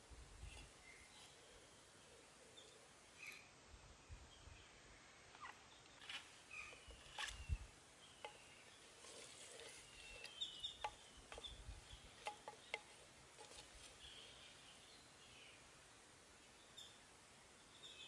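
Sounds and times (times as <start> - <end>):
faint bird chirps: 0.4 - 15.7, 16.4 - 18.0
wooden spatula stirring broth: 9.0 - 14.0.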